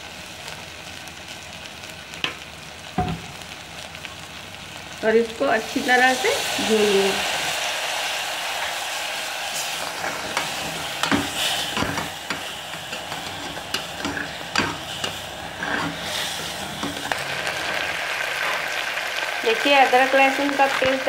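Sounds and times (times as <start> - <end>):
onions sizzling in oil: 0.0 - 21.0
spatula scraping and knocking pot: 10.0 - 17.2.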